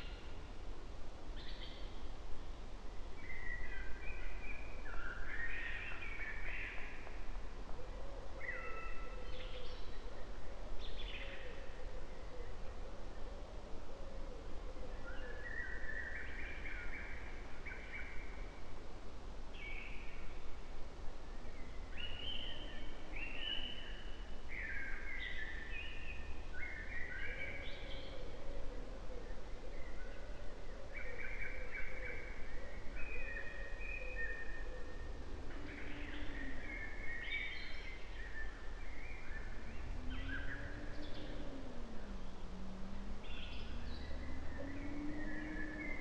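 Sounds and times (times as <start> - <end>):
birds singing: 3.1 - 13.2, 14.9 - 18.6, 21.3 - 46.0
low outdoor rumble: 34.2 - 46.0.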